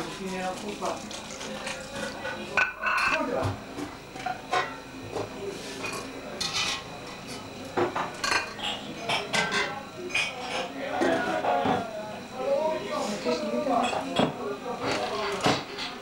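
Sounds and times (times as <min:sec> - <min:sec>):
pots and cutlery clinking: 0:01.6 - 0:03.2, 0:05.8 - 0:06.9, 0:07.8 - 0:11.8, 0:13.8 - 0:16.0.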